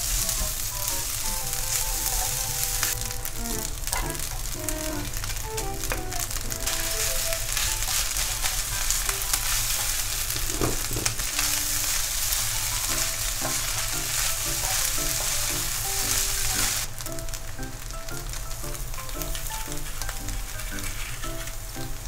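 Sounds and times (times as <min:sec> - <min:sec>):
soft background music: 0:00.0 - 0:10.1, 0:11.1 - 0:22.0
rice sizzling in a frying pan: 0:00.0 - 0:22.0
spatulas stirring in a pan: 0:00.0 - 0:22.0.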